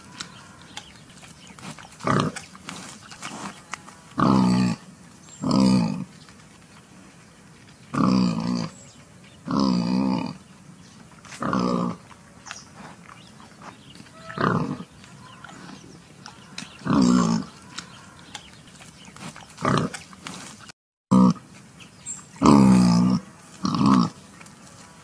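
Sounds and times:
wild boar grunting: 0:00.0 - 0:06.1, 0:07.9 - 0:10.5, 0:11.2 - 0:21.5, 0:22.4 - 0:25.0.

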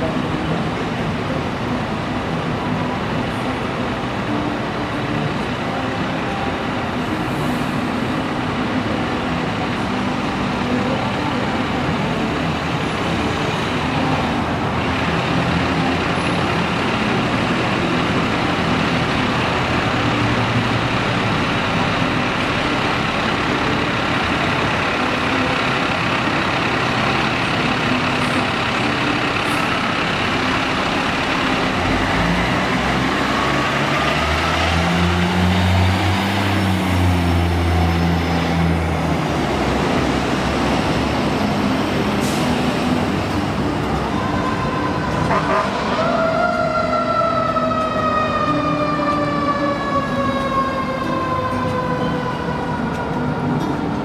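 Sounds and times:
fire truck diesel engine rumbling: 0:00.0 - 0:54.0.

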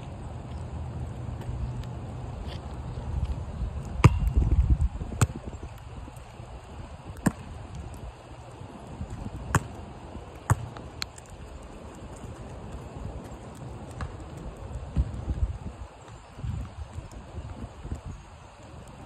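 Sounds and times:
basketball bouncing on asphalt: 0:00.0 - 0:06.0, 0:07.1 - 0:07.9, 0:08.9 - 0:17.7.

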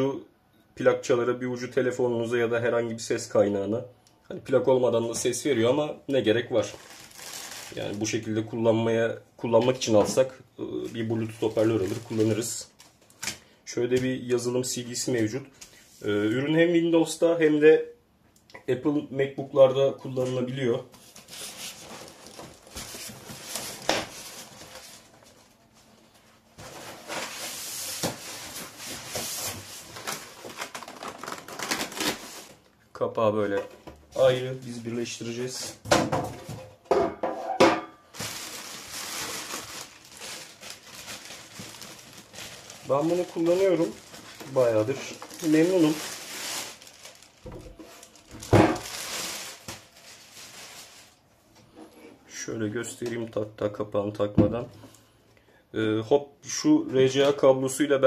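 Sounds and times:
packaging rustling: 0:06.5 - 0:08.3, 0:09.8 - 0:13.5, 0:20.5 - 0:32.7, 0:38.1 - 0:51.2
handling rustling: 0:38.2 - 0:51.1.

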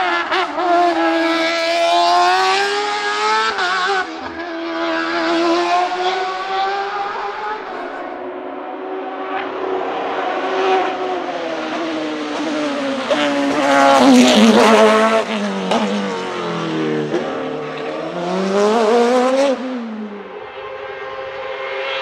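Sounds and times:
race car engine at high revs: 0:00.0 - 0:22.0.

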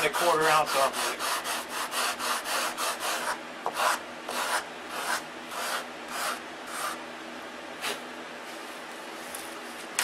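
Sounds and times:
sandpaper rubbing on wood: 0:00.0 - 0:07.0.

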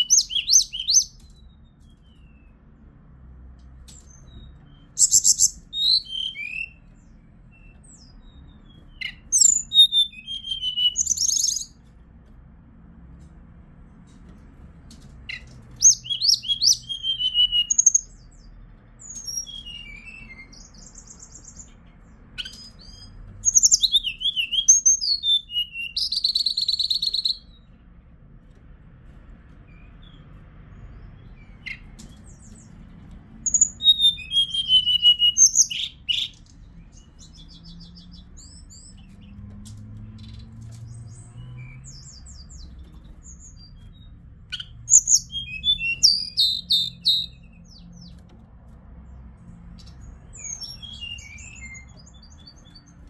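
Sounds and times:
bird singing whistled phrases: 0:00.0 - 0:01.2, 0:05.0 - 0:06.8, 0:08.9 - 0:11.8, 0:15.3 - 0:18.2, 0:19.0 - 0:21.6, 0:22.4 - 0:27.6, 0:33.4 - 0:36.4, 0:44.5 - 0:47.4, 0:50.4 - 0:52.6
bird trill: 0:00.0 - 0:02.6, 0:03.9 - 0:11.9, 0:15.3 - 0:27.7, 0:29.7 - 0:32.8, 0:33.4 - 0:39.4, 0:40.0 - 0:48.2, 0:49.8 - 0:53.0
faint bird chirps: 0:03.9 - 0:11.9.

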